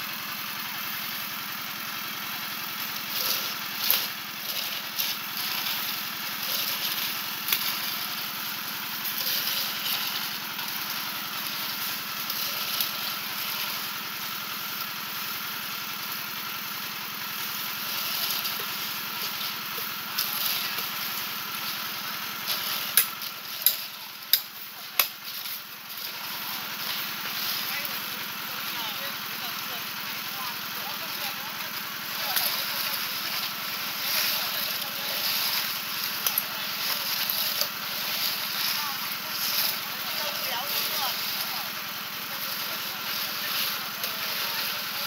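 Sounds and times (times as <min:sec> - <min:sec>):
small engine running: 0:00.0 - 0:45.0.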